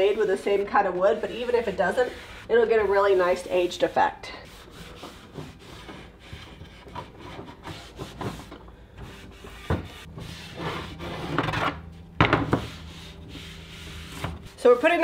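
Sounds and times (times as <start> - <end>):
cloth rubbing stain on wood: 0.0 - 5.9, 12.6 - 15.0.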